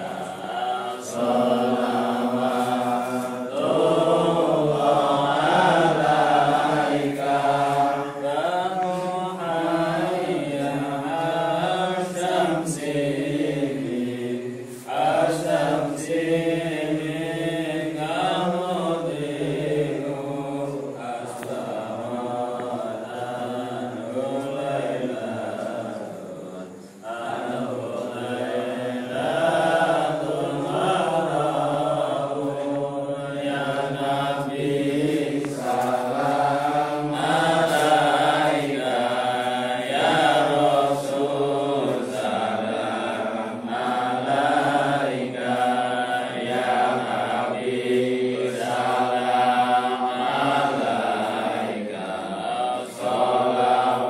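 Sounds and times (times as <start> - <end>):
men chanting in unison: 0.0 - 54.0.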